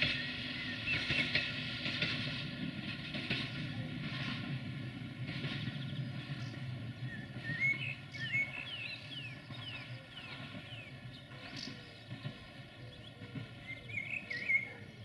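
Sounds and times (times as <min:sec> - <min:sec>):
train rumble: 0:00.0 - 0:15.0
songbird chirps: 0:05.5 - 0:15.0.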